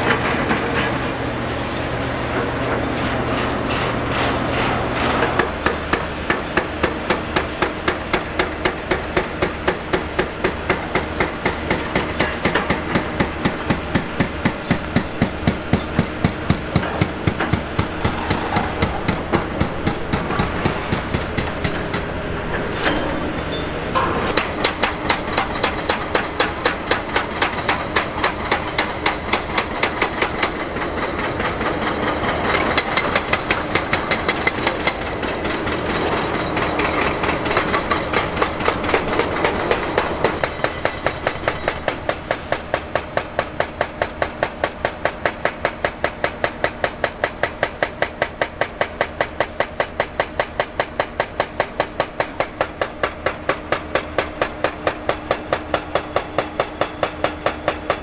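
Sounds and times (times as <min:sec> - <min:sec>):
engine running: 0:00.0 - 0:45.1.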